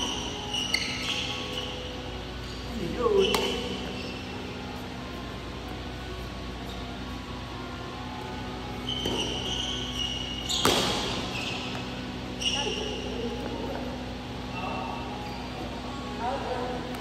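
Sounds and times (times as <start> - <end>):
shoes squeaking on court floor: 0.0 - 13.9, 14.5 - 16.0
racket striking shuttlecock: 3.2 - 3.8, 10.4 - 11.9.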